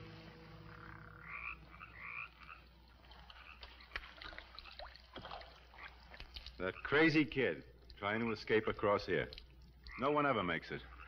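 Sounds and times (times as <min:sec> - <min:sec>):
frogs croaking: 0:00.6 - 0:11.0.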